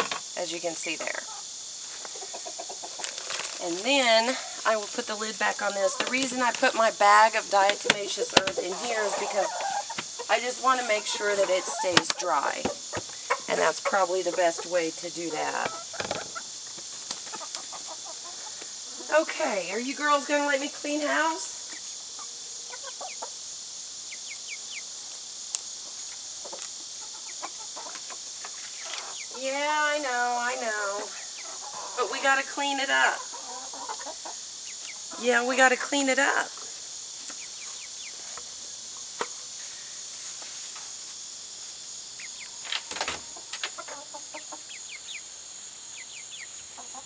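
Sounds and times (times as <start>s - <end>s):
high insect drone: 0.0s - 47.0s
hens clucking: 0.8s - 23.4s, 25.8s - 36.6s, 42.2s - 45.2s, 46.0s - 47.0s.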